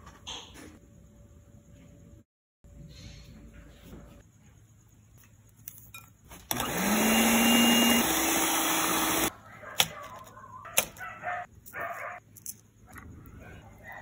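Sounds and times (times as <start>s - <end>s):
electric hand mixer whining: 6.5s - 9.3s.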